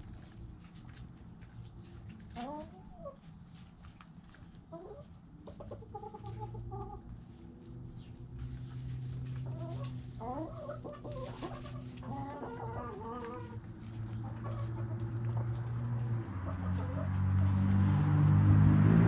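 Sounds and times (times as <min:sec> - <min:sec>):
hens clucking: 0:00.0 - 0:18.0.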